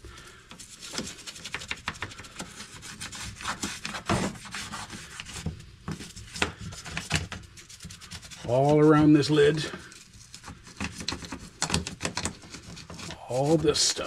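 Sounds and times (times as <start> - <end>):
stiff brush scrubbing metal: 7.6 - 14.0.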